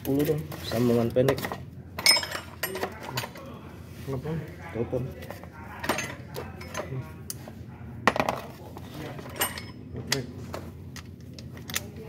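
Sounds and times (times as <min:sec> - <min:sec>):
metal tools clinking: 0:00.0 - 0:03.4, 0:05.8 - 0:07.1, 0:09.0 - 0:10.2.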